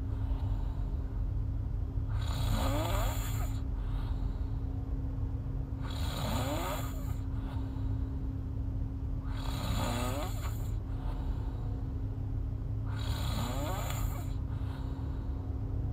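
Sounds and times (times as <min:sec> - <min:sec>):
woman snoring: 0:02.1 - 0:03.6, 0:05.8 - 0:07.7, 0:09.2 - 0:11.5, 0:12.9 - 0:15.0.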